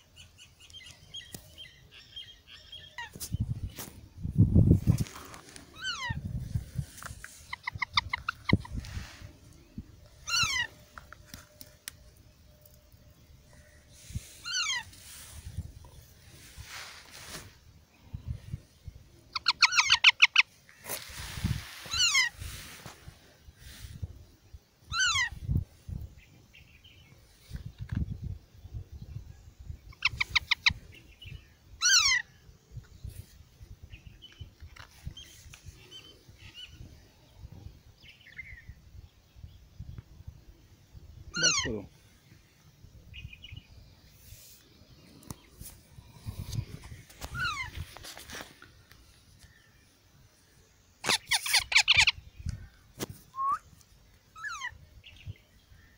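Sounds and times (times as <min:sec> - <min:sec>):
parakeet chick calling: 0:05.8 - 0:06.2, 0:07.5 - 0:08.8, 0:10.2 - 0:10.8, 0:14.4 - 0:14.9, 0:19.3 - 0:20.5, 0:21.9 - 0:22.4, 0:24.9 - 0:25.4, 0:29.9 - 0:30.8, 0:31.8 - 0:32.3, 0:41.3 - 0:41.8, 0:47.3 - 0:47.7, 0:51.0 - 0:52.2, 0:54.3 - 0:54.8
parakeet chicks chirping: 0:51.1 - 0:52.2.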